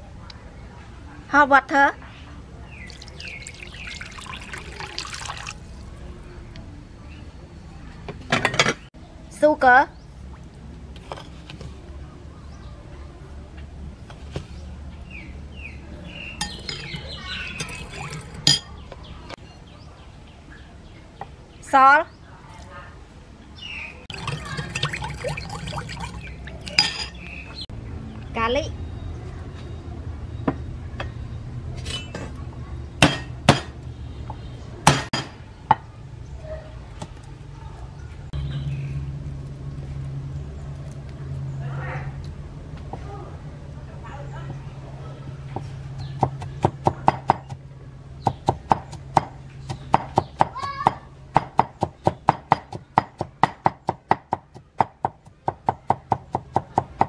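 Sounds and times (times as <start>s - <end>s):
spoon clinking against ceramic bowl: 16.4s - 18.7s, 24.1s - 27.2s.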